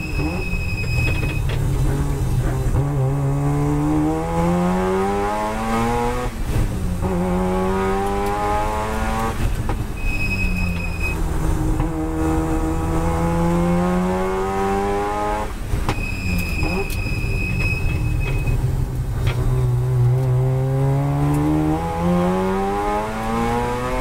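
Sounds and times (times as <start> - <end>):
short high beep: 0.0 - 1.4, 9.9 - 11.2, 16.0 - 18.6
rotary engine accelerating: 1.6 - 9.6, 11.2 - 15.6, 19.4 - 24.0.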